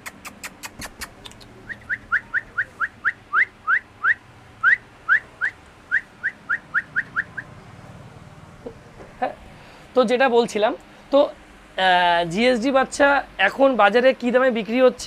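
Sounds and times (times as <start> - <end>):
puppy whining: 0.0 - 7.5.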